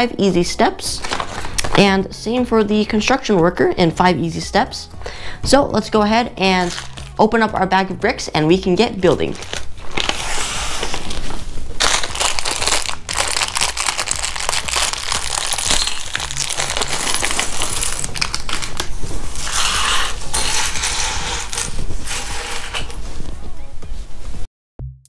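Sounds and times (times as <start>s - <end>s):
plastic bag crinkling: 1.0s - 1.8s, 6.6s - 7.2s, 9.2s - 23.2s.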